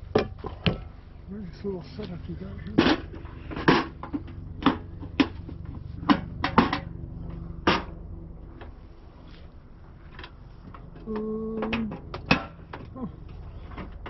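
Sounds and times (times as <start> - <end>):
sharp clicks and clanks of gear: 1.9 - 8.8, 9.4 - 14.0.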